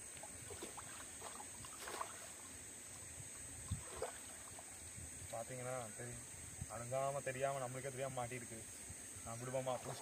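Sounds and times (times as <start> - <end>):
water splashing and dripping: 0.0 - 5.0.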